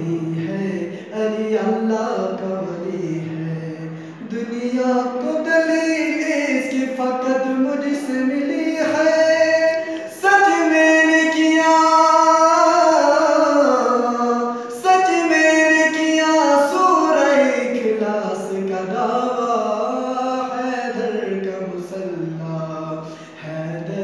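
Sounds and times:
man singing unaccompanied: 0.0s - 24.0s
singer breathing: 0.8s - 1.2s, 3.9s - 4.3s, 9.8s - 10.1s, 23.0s - 23.5s.

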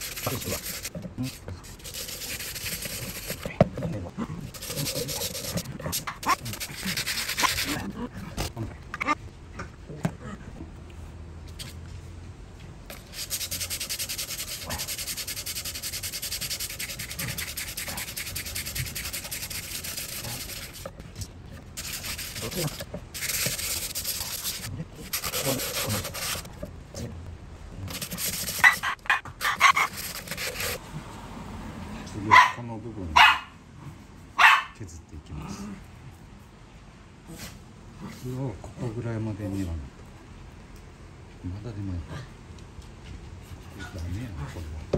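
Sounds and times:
sandpaper scratching on wood: 0.0s - 3.7s, 4.5s - 7.9s, 12.9s - 20.9s, 21.8s - 26.5s, 27.9s - 30.8s.

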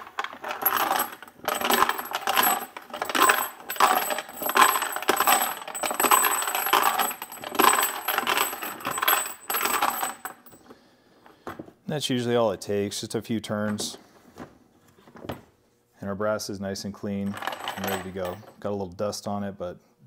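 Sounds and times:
brass cases clinking and rattling: 0.0s - 10.7s, 17.2s - 18.6s.

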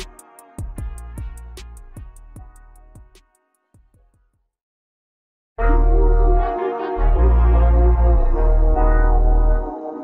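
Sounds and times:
background music with steady beat: 0.0s - 4.5s.

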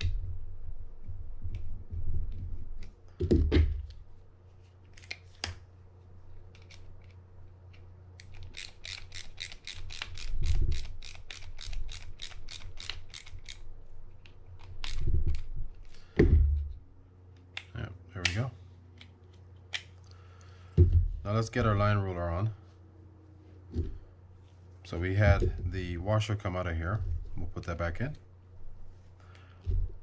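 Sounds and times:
small screwdriver driving a screw: 8.2s - 13.6s.

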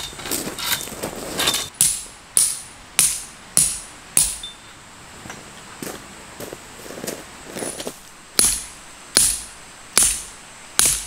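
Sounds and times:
hammer striking metal tent peg: 1.8s - 4.6s, 8.4s - 11.0s.

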